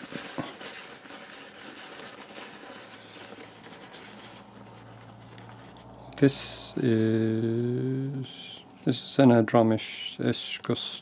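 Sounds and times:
paper towel wrapping rustling: 0.0s - 6.7s.

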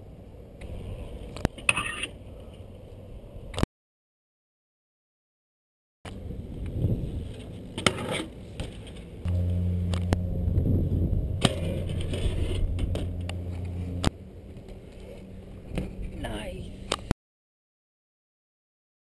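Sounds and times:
tyres humming on concrete: 6.1s - 17.1s.

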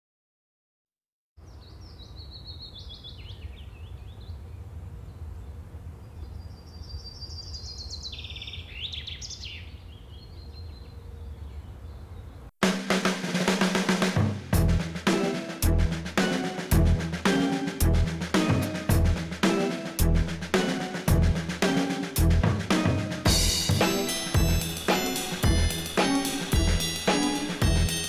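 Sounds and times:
birds chirping and trilling: 1.4s - 12.5s.

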